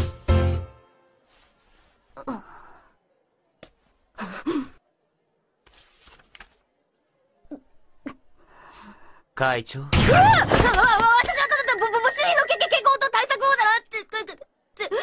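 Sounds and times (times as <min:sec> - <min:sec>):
soft rustle: 0:01.2 - 0:02.2, 0:05.6 - 0:06.8.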